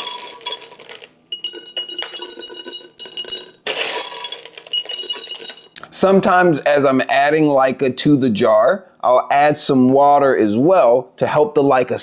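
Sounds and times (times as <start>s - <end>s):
clay pebbles poured into glass jar: 0.0s - 5.8s.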